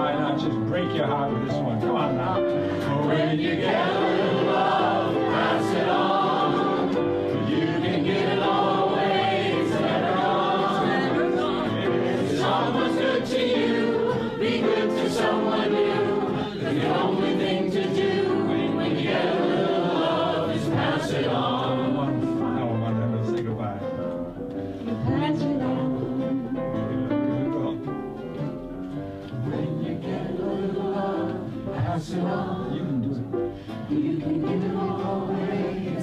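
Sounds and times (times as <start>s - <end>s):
piano: 0.0s - 36.0s
voices singing along: 2.2s - 22.9s, 29.4s - 36.0s.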